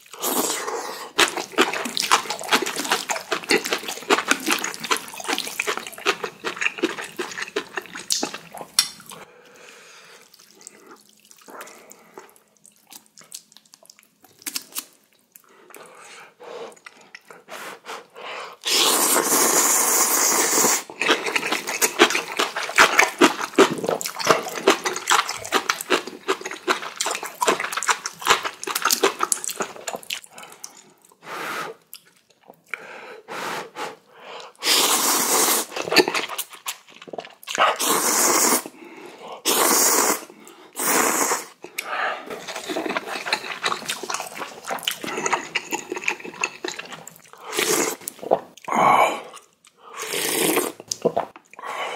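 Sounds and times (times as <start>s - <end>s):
person slurping noodles: 0.0s - 8.5s, 17.7s - 30.0s, 33.3s - 38.8s, 39.4s - 51.9s
wet chewing sounds: 0.0s - 9.3s, 10.2s - 16.1s, 20.9s - 31.2s, 34.6s - 37.9s, 41.6s - 48.7s.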